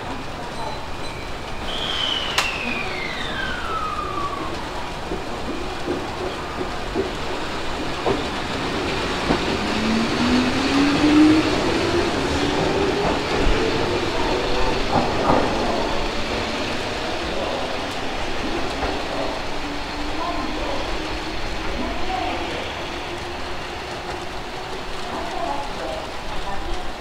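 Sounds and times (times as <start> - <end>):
train traction motor whine: 1.8 - 5.2
wheel clacks over rail joints: 4.8 - 10.0.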